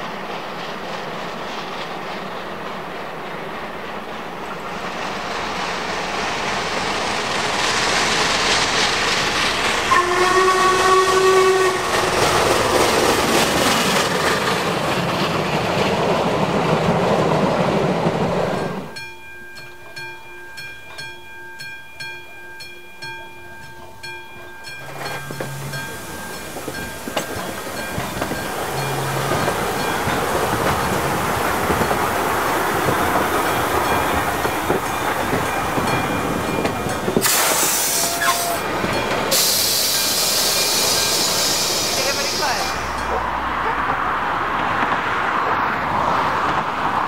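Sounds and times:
steam train passing: 0.0 - 47.0
chime steam whistle: 9.9 - 11.9, 18.6 - 31.2, 32.7 - 43.1.

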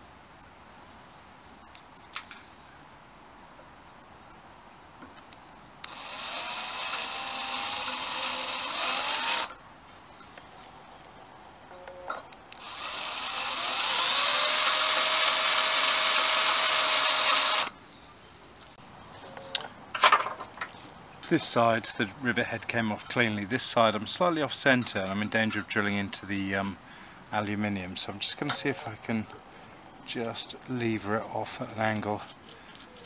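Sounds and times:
cordless drill drilling metal: 5.8 - 9.5, 12.6 - 17.7.

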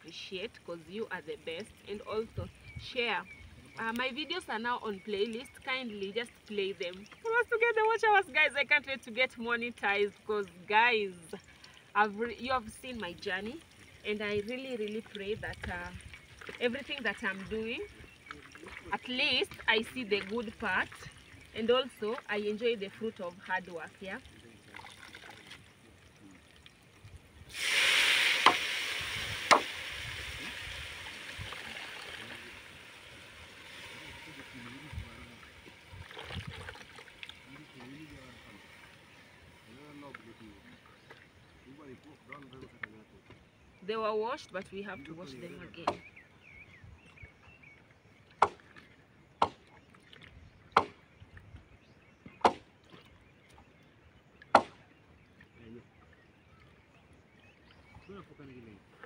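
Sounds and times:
food sizzling in hot oil: 27.5 - 34.5
sharp knocks: 29.5 - 29.7.

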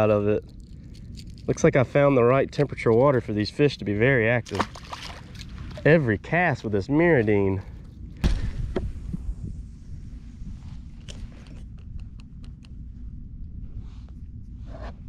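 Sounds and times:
wind rumble on microphone: 0.0 - 15.0.

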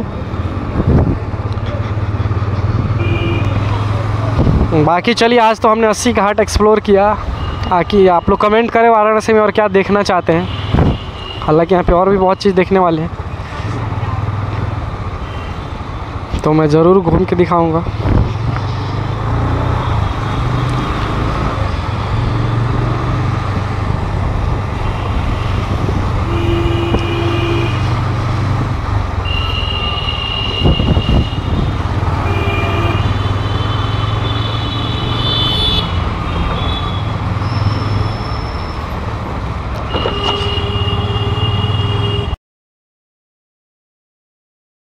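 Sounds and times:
vehicle horns honking: 3.0 - 3.7, 10.3 - 11.5, 24.8 - 27.9, 29.2 - 38.6, 39.8 - 42.4.

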